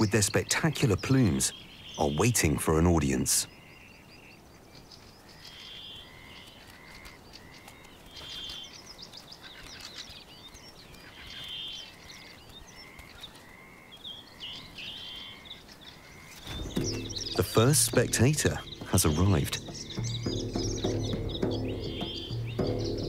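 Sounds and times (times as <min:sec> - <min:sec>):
bird trills: 0:00.0 - 0:23.0
birds calling: 0:00.0 - 0:23.0
scratchy bird chirps: 0:04.8 - 0:13.6, 0:14.3 - 0:23.0.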